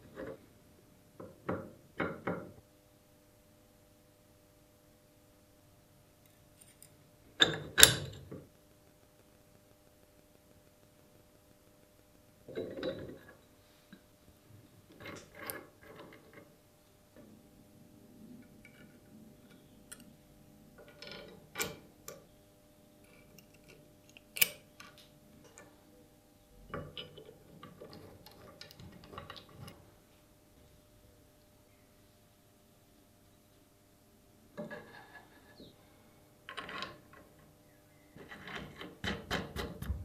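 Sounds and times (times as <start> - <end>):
steel parts clicking and clinking: 6.3 - 8.4.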